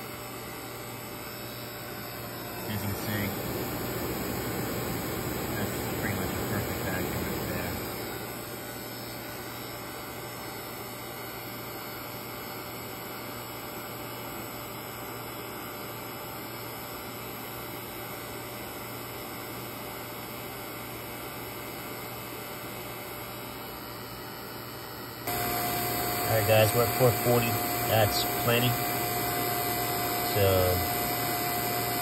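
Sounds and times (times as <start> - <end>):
vacuum pump humming: 0.0 - 9.7, 25.3 - 32.0.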